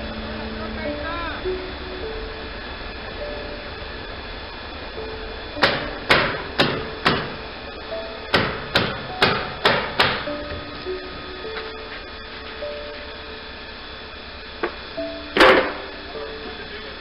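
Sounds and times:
hammer striking wood: 0:05.6 - 0:07.4, 0:08.3 - 0:10.3.

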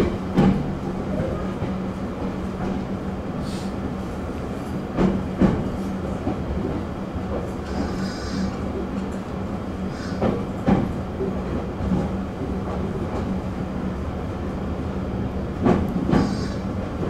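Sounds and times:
train rolling rumble: 0:00.0 - 0:17.0
wheels clacking over rail joint: 0:15.6 - 0:17.0.

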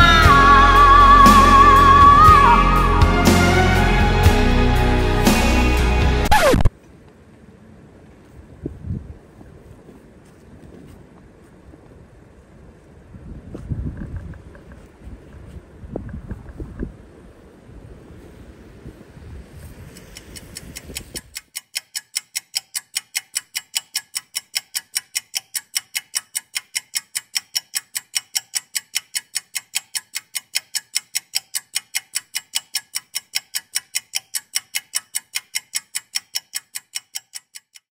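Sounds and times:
wind noise on microphone: 0:08.4 - 0:21.4
rapid even ticking: 0:19.9 - 0:37.9.

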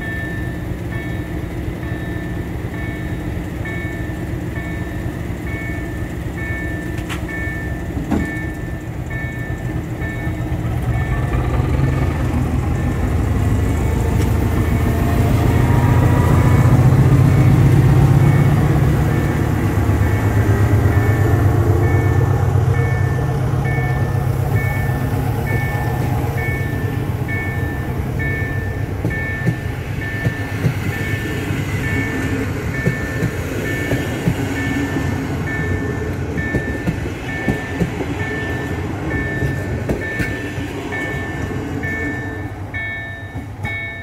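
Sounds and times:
diesel locomotive engine: 0:00.0 - 0:44.0
train coaches rolling by: 0:00.0 - 0:44.0
two-tone beeping: 0:20.0 - 0:40.4, 0:41.0 - 0:44.0.

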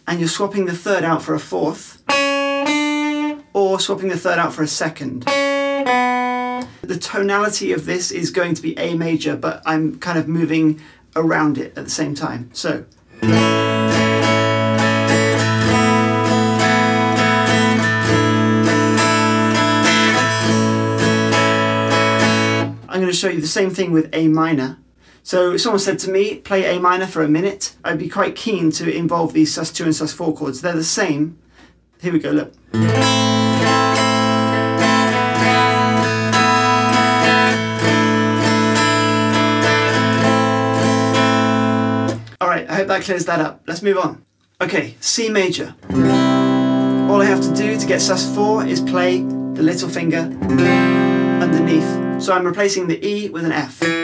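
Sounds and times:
electric guitar strumming chords: 0:02.0 - 0:03.5, 0:05.2 - 0:06.8, 0:13.2 - 0:22.8, 0:32.8 - 0:42.3, 0:45.8 - 0:52.4.

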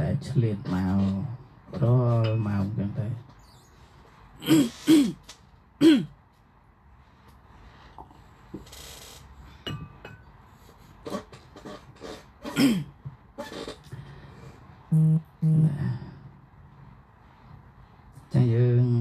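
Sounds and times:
person speaking: 0:00.0 - 0:03.3, 0:14.9 - 0:16.2.

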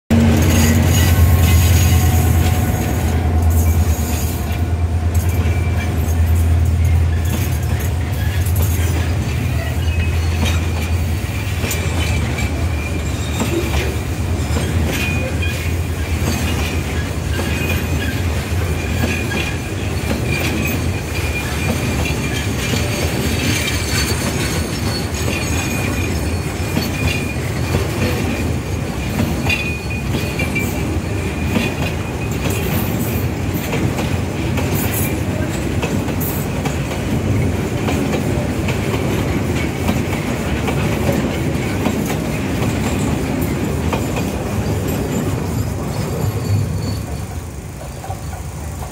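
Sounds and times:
train wheels rumbling on rail: 0:00.1 - 0:48.9
wheels clacking over rail joints: 0:00.1 - 0:48.9
high-pitched wheel squeal: 0:00.4 - 0:27.7, 0:44.7 - 0:48.5.

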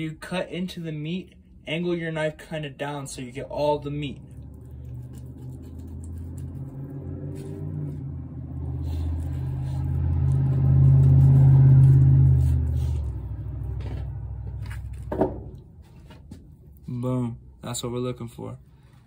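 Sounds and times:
heavy engine rumbling: 0:06.2 - 0:16.7.

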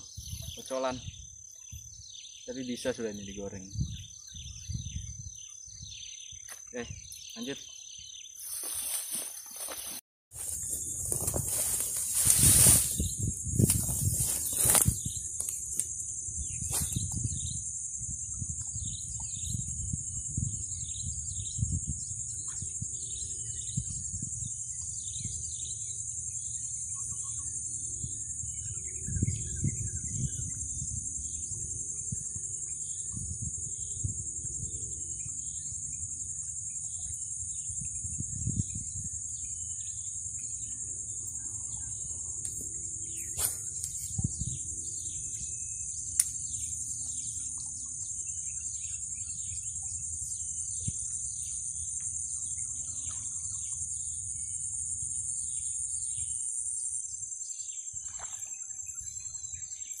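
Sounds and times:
birds chirping: 0:00.0 - 0:15.8
insects droning: 0:00.0 - 1:00.0.

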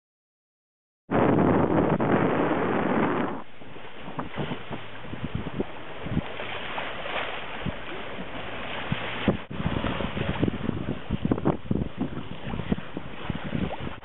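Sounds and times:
wind and water rushing: 0:01.1 - 0:14.0
splashes: 0:03.4 - 0:14.0.

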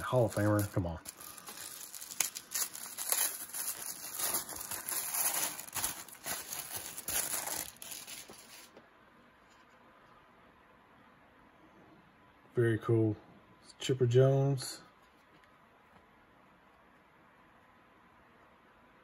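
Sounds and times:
tissue paper crinkling: 0:00.0 - 0:08.8.

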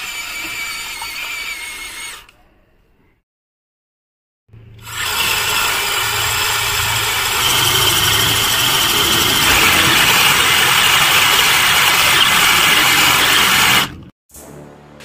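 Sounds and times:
electric motor whine: 0:04.8 - 0:14.0
wheels spinning in sand: 0:05.0 - 0:14.1.

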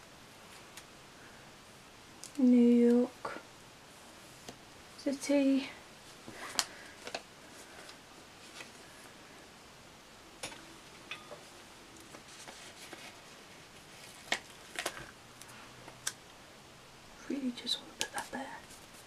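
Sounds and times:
sticker sheet paper crinkling: 0:12.0 - 0:15.1.

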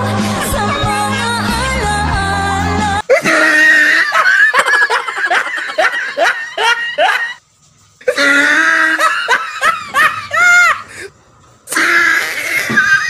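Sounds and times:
music: 0:00.0 - 0:03.1
loud laughter: 0:03.1 - 0:07.4, 0:08.1 - 0:10.9, 0:11.7 - 0:13.0.

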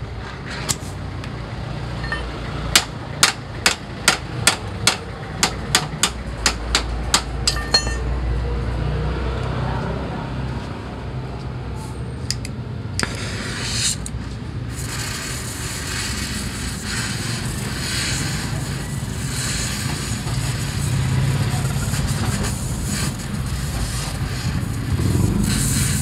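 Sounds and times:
welding torch flame hissing: 0:00.4 - 0:01.3, 0:13.0 - 0:26.0.

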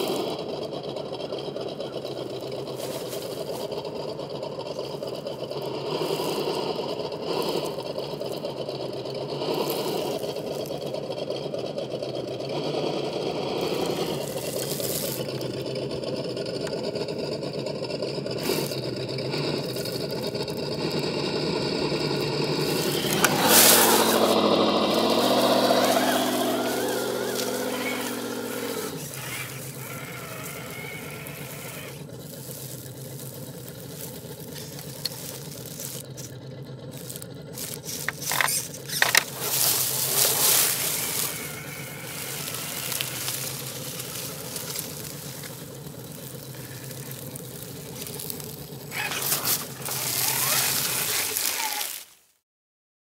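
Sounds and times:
rc car motor whining: 0:00.0 - 0:52.4
scraping on rock: 0:12.6 - 0:15.7, 0:22.0 - 0:52.2.

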